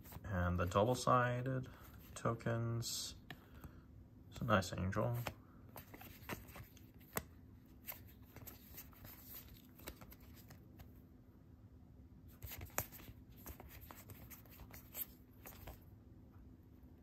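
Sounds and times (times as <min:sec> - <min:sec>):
playing cards swishing and clicking: 0:05.0 - 0:11.0, 0:12.3 - 0:15.8.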